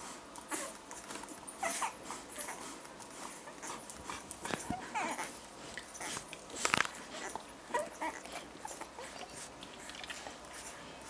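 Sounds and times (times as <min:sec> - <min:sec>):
puppies squeaking and whimpering: 0:00.5 - 0:10.7.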